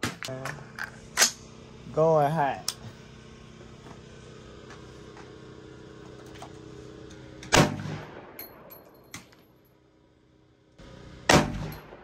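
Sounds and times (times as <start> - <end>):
steady low hum: 0.0 - 12.0
loud gunshot: 7.5 - 8.4, 11.3 - 12.0.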